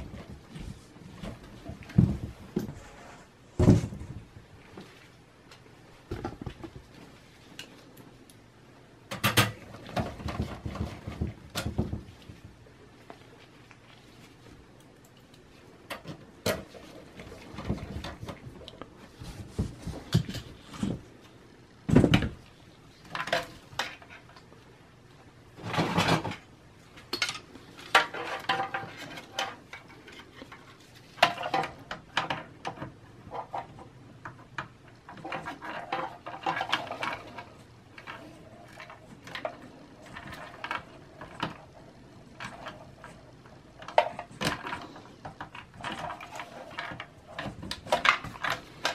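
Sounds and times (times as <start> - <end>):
scraping rustle: 0.0 - 5.2.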